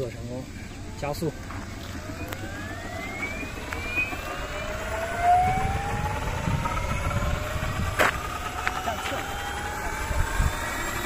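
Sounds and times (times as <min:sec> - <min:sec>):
rc helicopter motor whine rising: 0:00.0 - 0:11.0
low rumble: 0:00.2 - 0:11.0.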